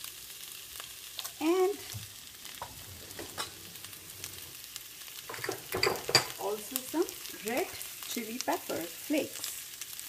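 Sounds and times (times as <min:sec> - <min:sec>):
potatoes sizzling in oil: 0:00.0 - 0:10.0
spatula scraping and tapping pan: 0:01.2 - 0:04.6, 0:05.3 - 0:06.4.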